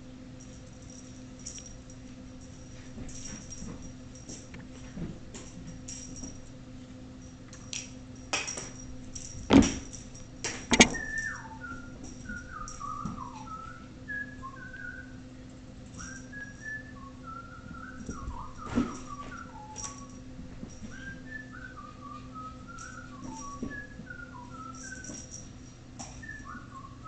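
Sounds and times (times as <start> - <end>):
sharp knocks: 10.6 - 11.1
person whistling a tune: 10.7 - 15.2, 16.0 - 20.2, 20.8 - 25.4, 26.1 - 27.0.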